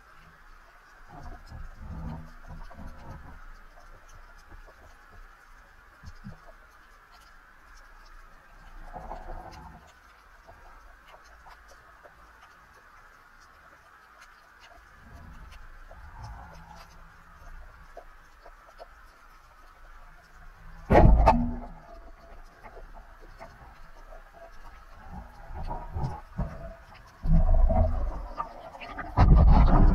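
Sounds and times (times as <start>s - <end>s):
underwater clicks and crackles: 0.0s - 29.9s
low swishing rumble: 27.2s - 29.9s.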